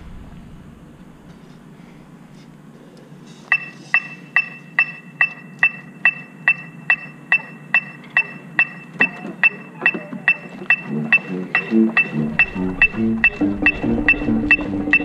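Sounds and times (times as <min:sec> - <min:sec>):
sharp steady clicks: 0:03.5 - 0:15.0.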